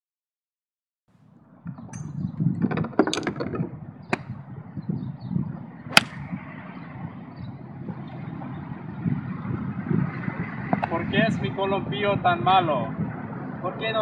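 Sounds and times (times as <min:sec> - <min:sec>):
golf club striking ball: 0:01.8 - 0:04.3, 0:05.9 - 0:06.3.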